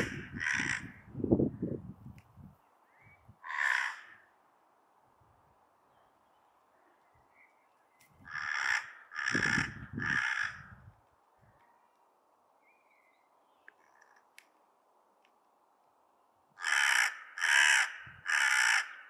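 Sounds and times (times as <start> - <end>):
crow cawing: 0.0 - 1.0, 3.4 - 4.3, 8.2 - 10.8, 16.6 - 19.0.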